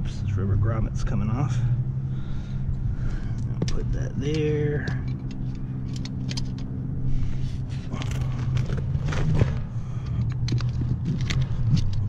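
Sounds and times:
low machine hum: 0.0 - 12.0
metal parts and tools clinking: 4.2 - 6.7.

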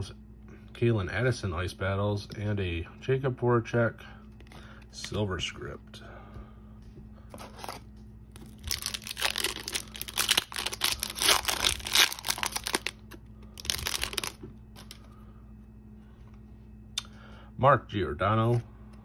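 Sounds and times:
foil wrapper tearing and crinkling: 8.4 - 15.0.

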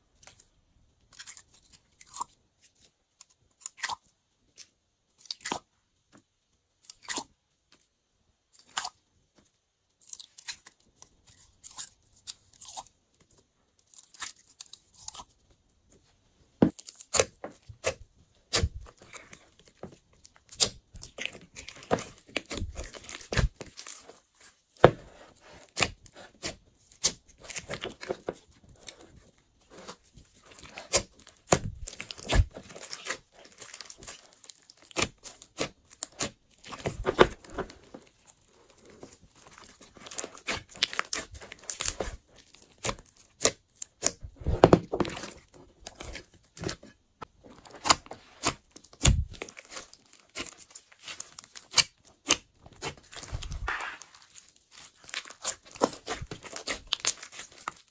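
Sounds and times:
slime squelching: 16.6 - 57.9.

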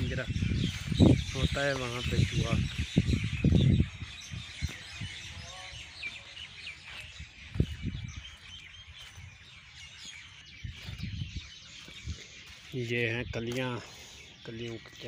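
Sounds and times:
wind and handling thumps on microphone: 0.0 - 5.3, 7.1 - 9.4, 10.0 - 12.5
small birds chirping: 0.0 - 15.0.

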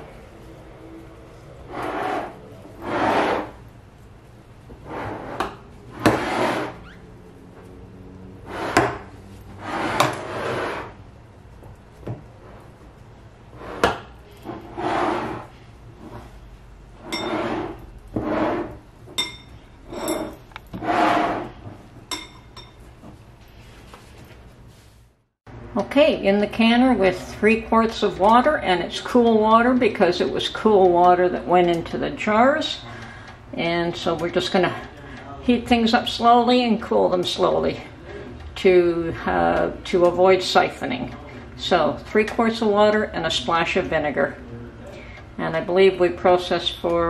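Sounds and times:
glass jars clinking and knocking: 18.6 - 21.3, 22.0 - 22.9.

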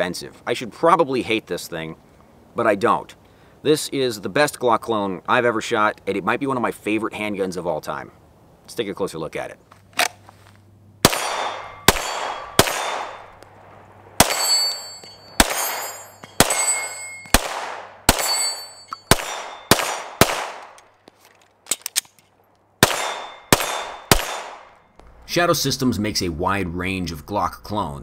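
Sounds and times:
pistol shots with echo: 11.0 - 13.4, 14.2 - 20.8, 22.8 - 24.8
metallic ring: 14.2 - 17.4, 18.2 - 19.7, 23.1 - 24.1.

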